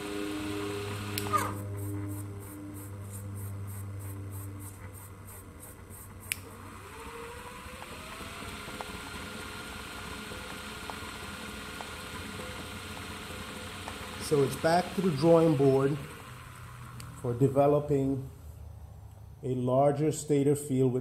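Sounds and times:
electric motor humming and whining: 0.0 - 18.2
click: 6.3 - 6.5.

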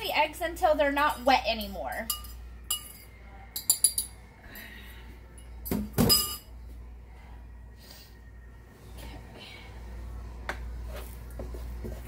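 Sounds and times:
fork clinking against bowl: 2.0 - 4.2.

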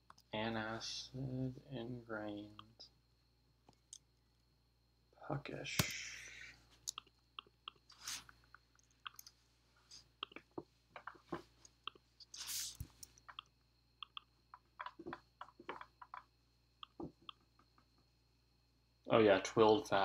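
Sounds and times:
computer mouse clicking: 6.9 - 8.0, 12.8 - 15.0
short soft hisses: 12.3 - 13.0.

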